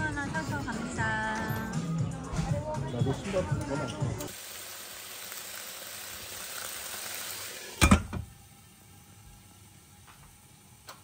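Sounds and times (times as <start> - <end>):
pancakes sizzling in a frying pan: 4.3 - 11.0.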